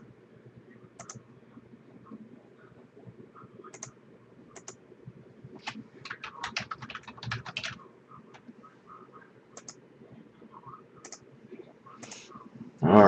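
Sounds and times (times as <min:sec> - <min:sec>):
typing on computer keyboard: 0:05.6 - 0:08.4.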